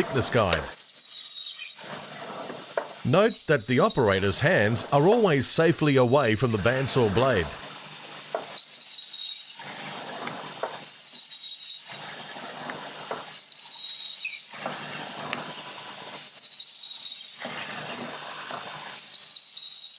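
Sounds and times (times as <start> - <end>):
bandsaw high whine: 0.0 - 0.7
bandsaw cutting frozen meat: 9.6 - 16.3, 17.3 - 19.0.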